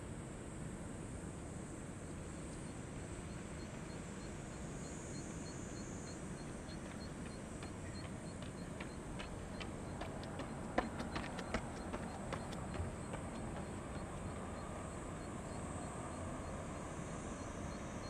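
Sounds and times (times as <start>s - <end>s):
distant jet engines rumbling: 6.0s - 18.0s.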